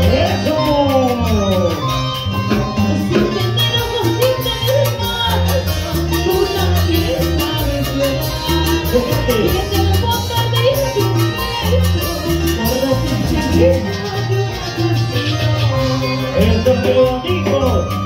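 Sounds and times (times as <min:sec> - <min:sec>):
latin dance band music: 0:00.0 - 0:18.0
woman singing into microphone: 0:03.0 - 0:16.8.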